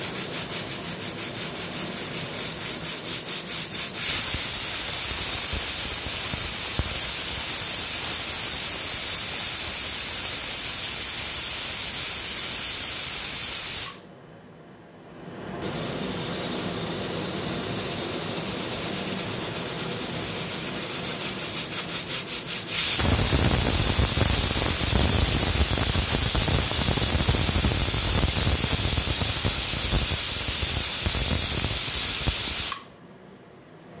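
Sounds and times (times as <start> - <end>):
pressure cooker whistling: 3.9 - 14.0, 20.3 - 32.9.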